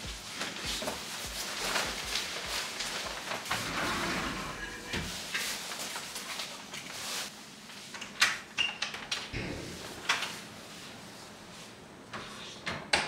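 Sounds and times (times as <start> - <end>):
door thud: 9.4 - 10.2.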